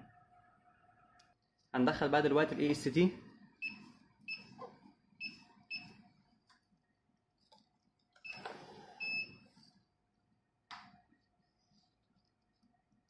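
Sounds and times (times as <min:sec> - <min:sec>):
keypad beeps: 0:05.2 - 0:06.0, 0:08.2 - 0:09.4.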